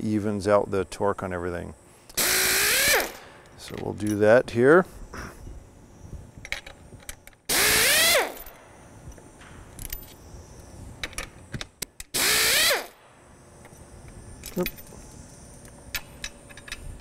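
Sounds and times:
air nut runner hissing and whining: 2.0s - 3.5s, 4.9s - 17.0s.

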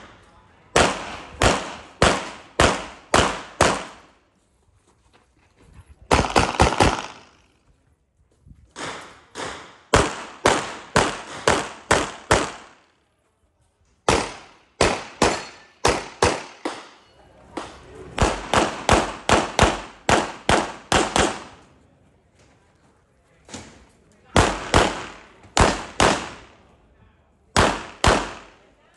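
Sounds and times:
pistol shots with ringing echo: 0.7s - 4.1s, 6.1s - 7.5s, 8.8s - 12.9s, 14.0s - 21.6s, 24.4s - 26.6s, 27.6s - 28.6s.

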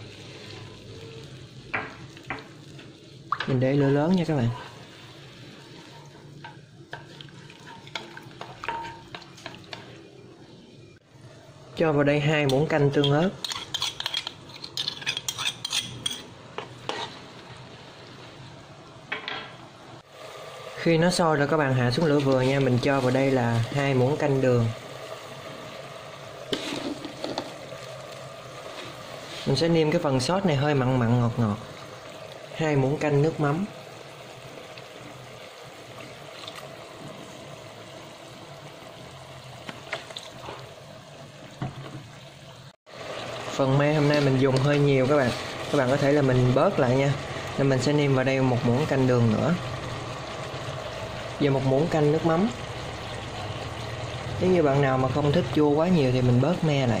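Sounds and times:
sauce hissing in wok: 0.0s - 1.7s, 2.5s - 6.3s, 20.0s - 39.6s
sauce bubbling in a wok: 0.0s - 14.2s, 16.0s - 19.0s, 20.0s - 57.0s
spoon scraping ceramic bowl: 13.4s - 16.3s.

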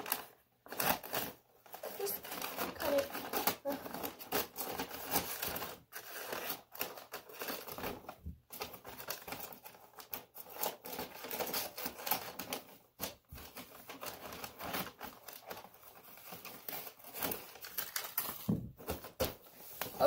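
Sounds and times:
paper rustling: 0.0s - 20.0s
scissors snipping paper: 8.6s - 18.4s.

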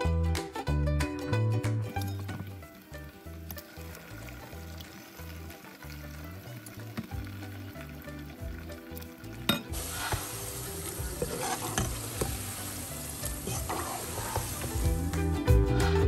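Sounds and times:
background music: 0.0s - 16.0s
chips sizzling in oil: 1.9s - 16.0s
utensil stirring chips: 9.7s - 16.0s.

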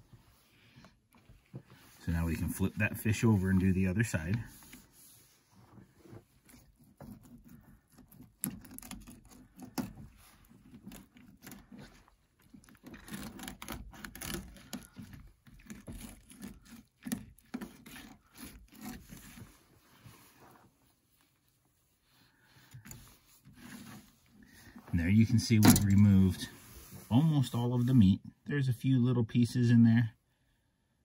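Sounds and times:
knife scraping fish bones: 6.4s - 19.5s.

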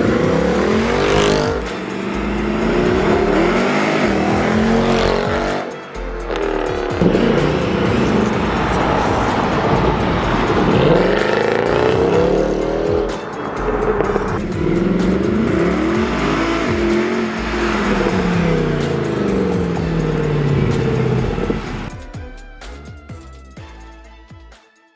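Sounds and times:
car engine revving past: 6.3s - 21.9s.

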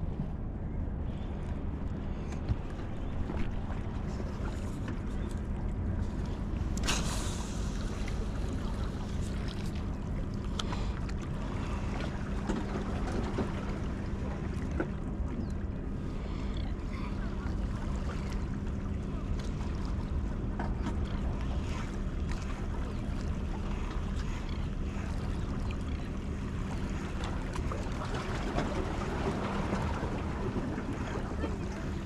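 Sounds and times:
distant engine drone: 0.0s - 32.0s
water noise: 0.0s - 32.0s.

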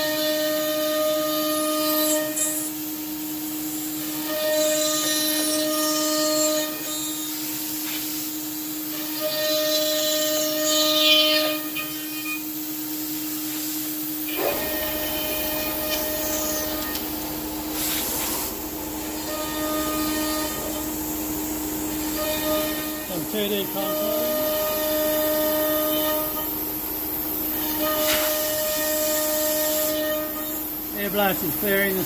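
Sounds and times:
hissing air blast: 12.4s - 26.4s
router spindle cutting wood: 14.3s - 17.1s, 19.0s - 21.0s, 21.9s - 26.5s.

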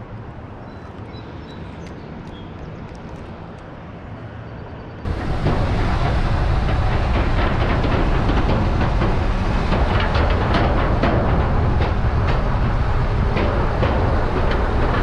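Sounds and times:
truck rumbling over bridge: 5.0s - 15.0s.

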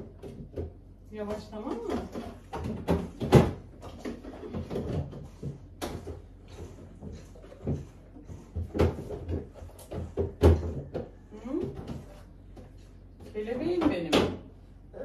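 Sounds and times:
household thuds and clicks: 0.0s - 14.5s.

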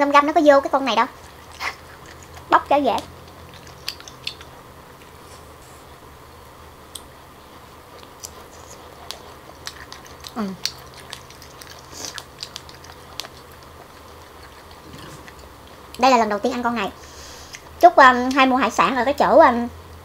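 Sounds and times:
chewing mouth sounds: 1.1s - 5.2s, 8.0s - 16.1s, 17.4s - 18.4s
person's voice: 16.0s - 17.0s.

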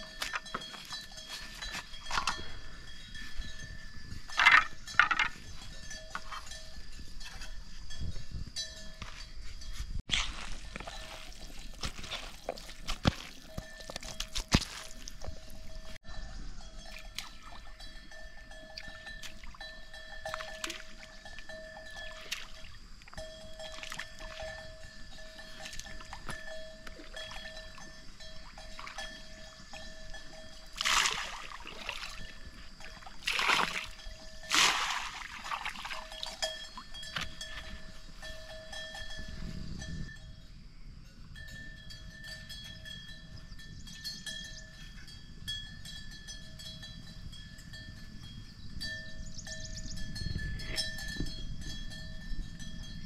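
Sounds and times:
bait splashing into pond: 30.8s - 32.4s, 33.0s - 36.4s.

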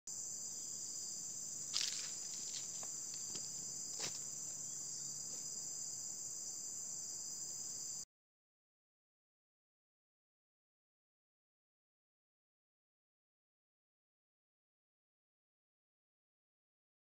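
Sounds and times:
insects chorus: 0.1s - 8.1s.

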